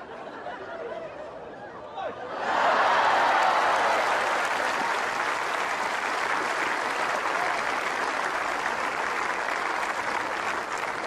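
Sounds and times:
crowd applauding: 0:02.5 - 0:11.0.

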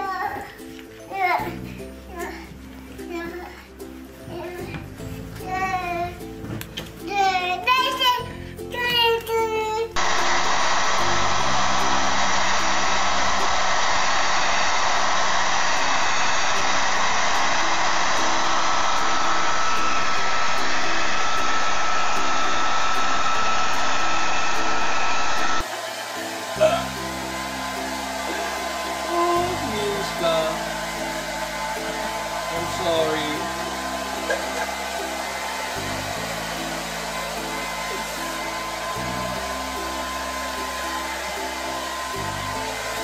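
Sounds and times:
background music: 0:00.0 - 0:13.5, 0:25.6 - 0:43.0
hair dryer blowing with whine: 0:10.0 - 0:43.0.

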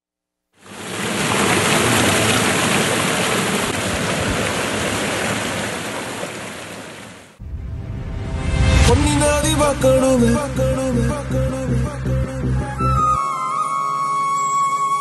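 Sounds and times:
rushing water: 0:00.6 - 0:07.4.

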